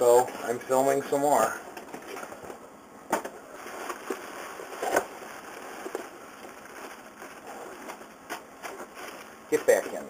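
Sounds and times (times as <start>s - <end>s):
cardboard box rustling: 3.5s - 9.9s.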